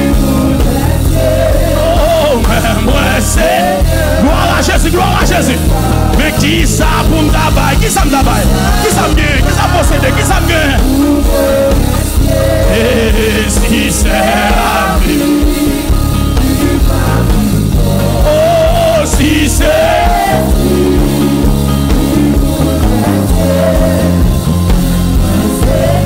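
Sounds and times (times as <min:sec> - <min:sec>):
band with heavy bass: 0:00.0 - 0:26.0
people singing praise music: 0:00.0 - 0:26.0.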